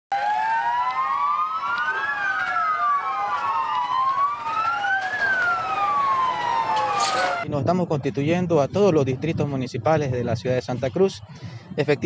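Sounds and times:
police sirens wailing: 0:00.1 - 0:07.5.

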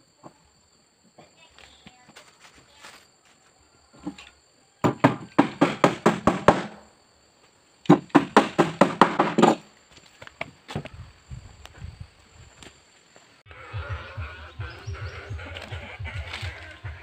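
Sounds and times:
hammer nailing wood plank: 0:04.8 - 0:06.8, 0:07.9 - 0:09.6.

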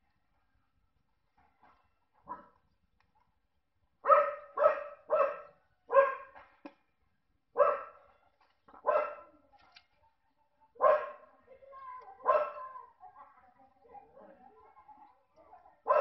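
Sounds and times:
dog barking: 0:02.2 - 0:02.6, 0:04.0 - 0:06.4, 0:07.6 - 0:08.2, 0:08.8 - 0:09.3, 0:10.8 - 0:11.3, 0:12.2 - 0:12.7.

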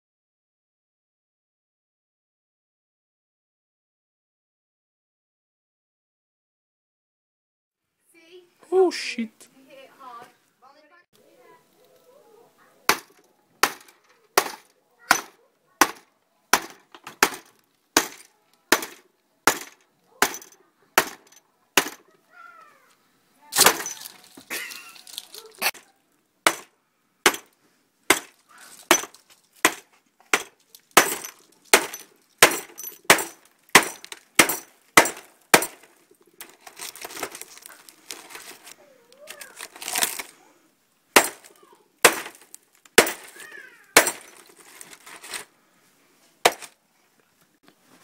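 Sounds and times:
hammer striking glass screen: 0:12.9 - 0:16.0, 0:16.6 - 0:22.0, 0:23.6 - 0:24.1, 0:26.5 - 0:26.7, 0:27.3 - 0:27.5, 0:28.1 - 0:35.9, 0:41.2 - 0:41.5, 0:42.1 - 0:44.4, 0:46.5 - 0:46.7
broken glass crunching: 0:16.6 - 0:22.0, 0:23.5 - 0:25.9, 0:28.1 - 0:40.3, 0:41.2 - 0:45.5, 0:46.5 - 0:46.8
glass breaking: 0:16.6 - 0:22.0, 0:23.6 - 0:25.8, 0:28.1 - 0:38.4, 0:41.2 - 0:45.1, 0:46.5 - 0:46.7.

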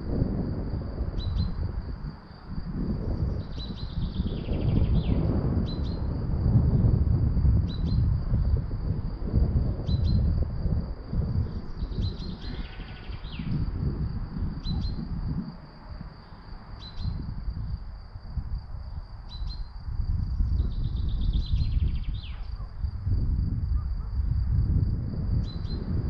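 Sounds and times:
low gusty rumble: 0:00.0 - 0:26.0
bird chirping and trilling: 0:11.7 - 0:13.6, 0:14.6 - 0:15.1, 0:16.8 - 0:17.2, 0:20.4 - 0:22.6.

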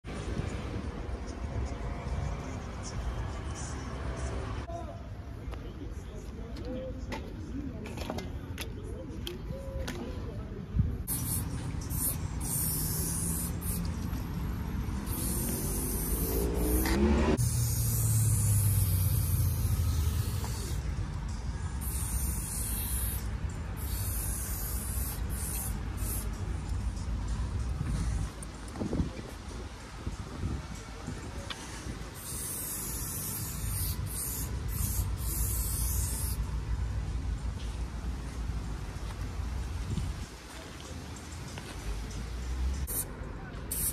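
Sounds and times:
spray paint can hissing: 0:11.1 - 0:14.2, 0:14.9 - 0:20.9, 0:21.8 - 0:26.8, 0:32.1 - 0:36.5, 0:42.8 - 0:43.1, 0:43.7 - 0:43.9
engine humming: 0:13.1 - 0:21.9.

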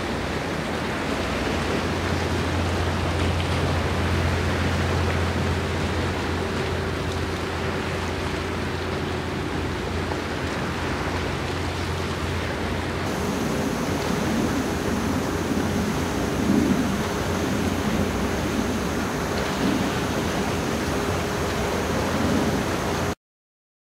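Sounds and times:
sea at shoreline: 0:00.0 - 0:23.2
wind: 0:00.0 - 0:23.2
low steady hum: 0:00.1 - 0:23.2.

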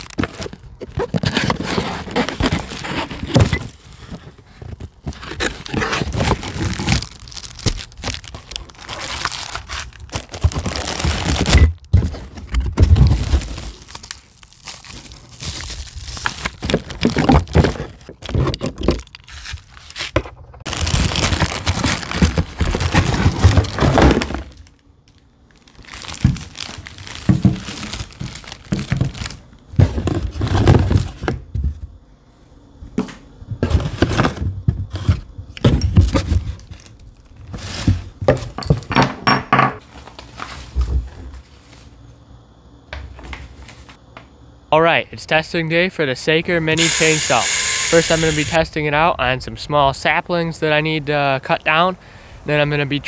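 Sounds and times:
plastic packaging crinkling: 0:00.0 - 0:03.9, 0:04.7 - 0:11.9, 0:13.0 - 0:31.1
items being moved: 0:00.0 - 0:32.0, 0:32.9 - 0:42.0.

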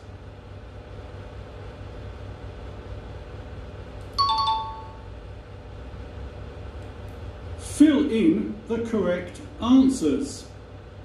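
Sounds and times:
steady low hum: 0:00.0 - 0:11.0
two-note falling chime: 0:04.2 - 0:05.0.

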